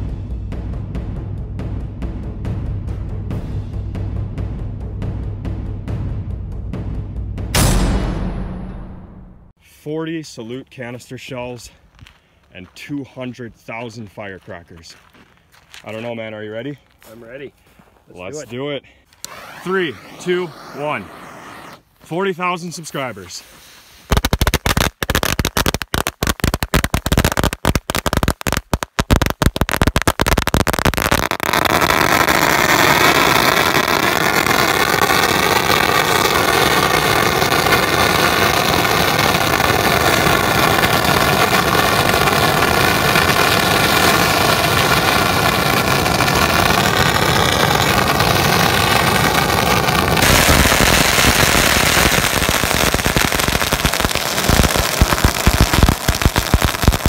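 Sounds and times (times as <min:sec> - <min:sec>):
firecrackers crackling: 0:19.2 - 0:21.9, 0:22.6 - 0:57.0.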